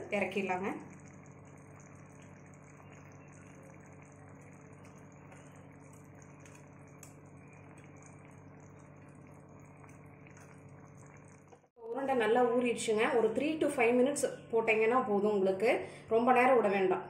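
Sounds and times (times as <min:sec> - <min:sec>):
gravy bubbling in a pan: 0:00.0 - 0:11.8
steady low hum: 0:00.0 - 0:14.8.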